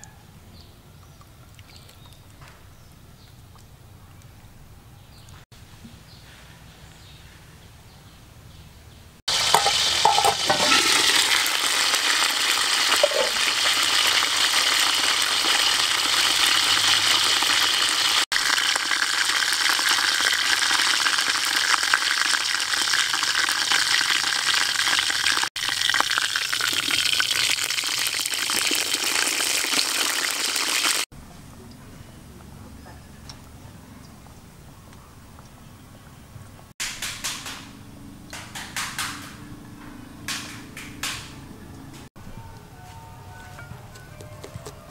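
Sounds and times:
chicken sizzling and crackling in pot: 9.3s - 31.1s.

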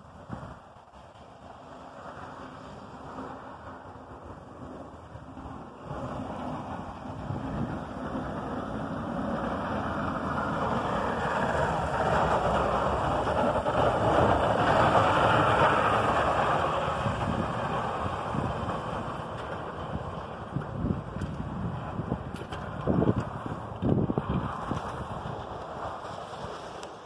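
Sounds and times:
snow rushing off plow blade: 0.0s - 27.0s
truck engine: 0.0s - 27.0s.

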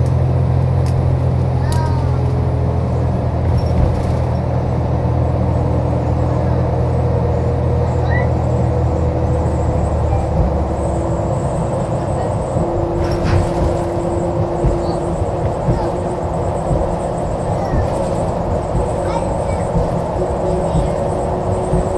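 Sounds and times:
bus engine humming: 0.0s - 21.9s.

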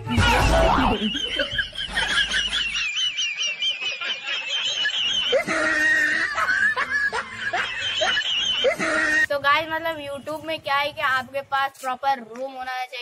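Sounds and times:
high warbling sound: 0.0s - 1.4s.

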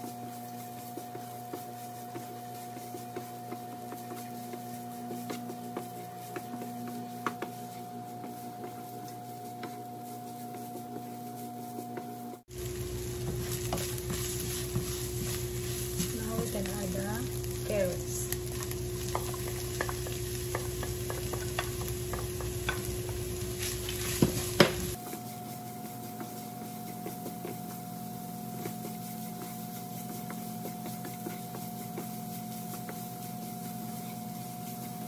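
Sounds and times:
wooden spatula scraping a pan: 0.0s - 35.0s
food sizzling in a frying pan: 12.5s - 26.6s
spatula knocking on pan: 13.2s - 17.4s, 18.5s - 25.0s.

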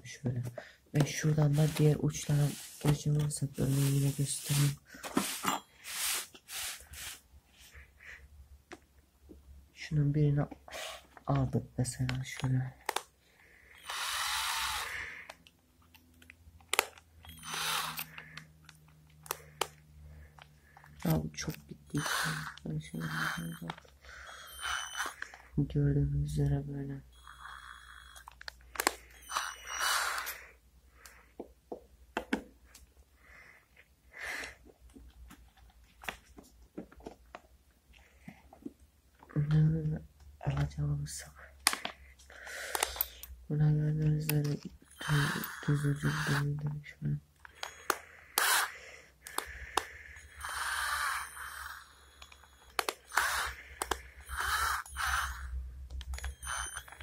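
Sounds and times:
drill bits rattling in plastic case: 13.8s - 15.0s, 16.8s - 18.4s, 44.4s - 46.4s.

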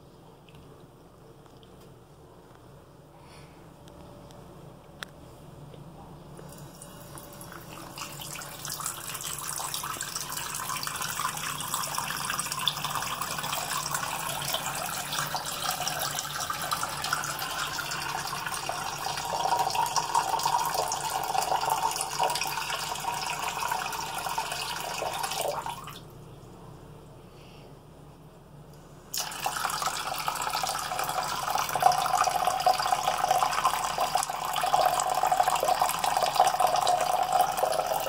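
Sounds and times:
faucet water pouring into sink: 6.5s - 26.0s, 29.1s - 38.0s.

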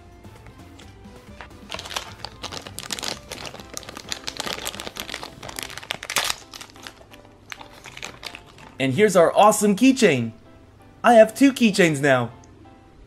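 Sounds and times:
plastic bag crinkling: 1.4s - 8.8s.

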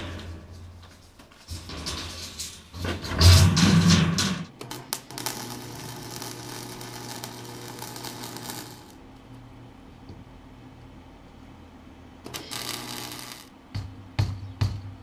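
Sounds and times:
steel sheet clattering down: 0.0s - 4.5s
welder arc crackling: 0.0s - 9.0s, 12.2s - 13.6s.

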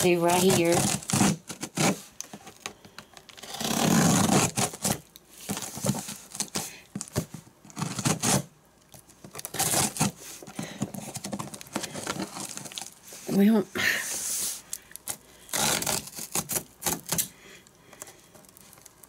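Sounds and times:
scissors cutting cardboard box tape: 0.0s - 2.5s, 3.3s - 8.5s, 9.3s - 12.8s, 15.1s - 17.3s.

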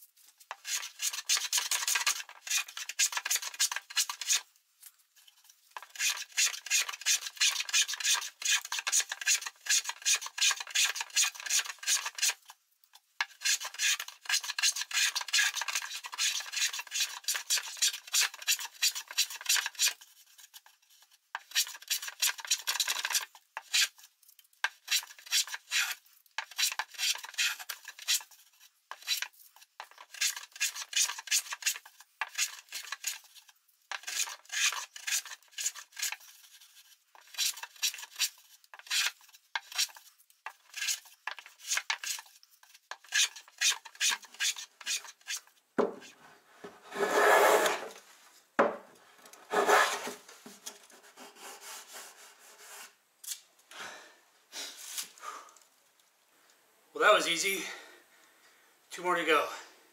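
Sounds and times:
hand plane shaving wood: 5.8s - 12.4s, 13.3s - 20.5s, 34.0s - 36.5s, 46.6s - 48.0s, 49.4s - 50.3s, 51.0s - 52.9s.

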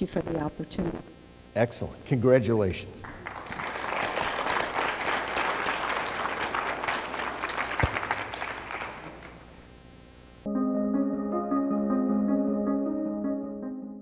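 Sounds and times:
audience applauding: 3.0s - 9.5s
music: 10.5s - 14.0s.

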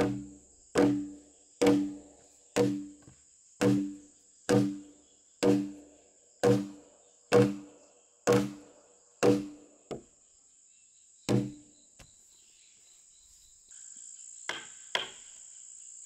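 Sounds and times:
wooden mallet pounding log: 0.0s - 10.1s, 11.3s - 11.6s.

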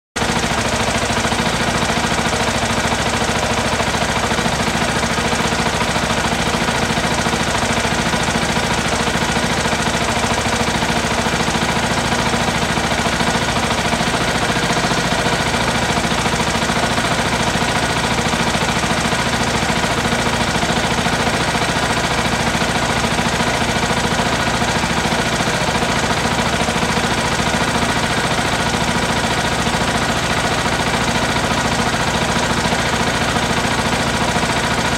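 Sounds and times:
motorcycle engine idling: 0.2s - 34.9s.

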